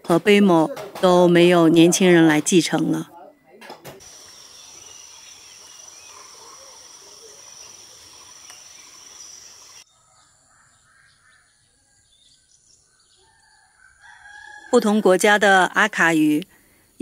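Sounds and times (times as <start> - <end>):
faint scattered calls: 3.4 - 11.8
background hiss: 4.0 - 9.8
high-pitched insect drone: 4.0 - 9.8.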